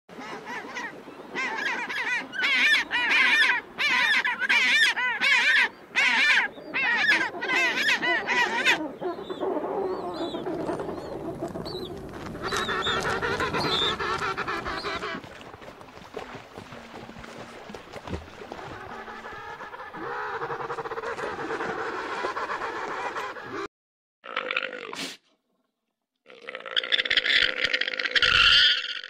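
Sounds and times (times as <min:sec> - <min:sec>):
penguins braying: 0:12.2 - 0:15.2.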